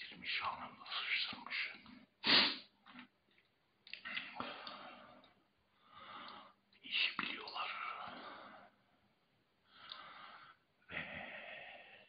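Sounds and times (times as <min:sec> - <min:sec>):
soft breathing: 0:04.1 - 0:12.0.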